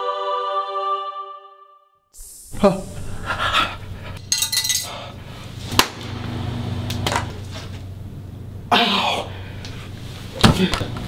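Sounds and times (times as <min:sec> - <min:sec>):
plate and fork clattering on floor: 0:04.2 - 0:05.0.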